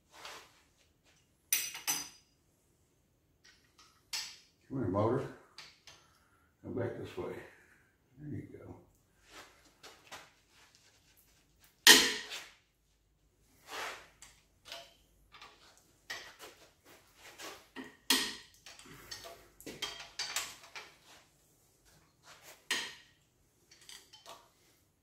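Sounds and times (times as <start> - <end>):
metal tools clanking on engine: 18.6 - 20.9.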